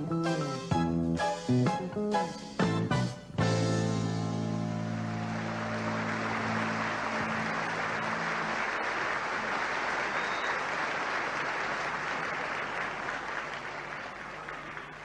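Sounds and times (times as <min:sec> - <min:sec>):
audience applauding: 0:04.4 - 0:15.0.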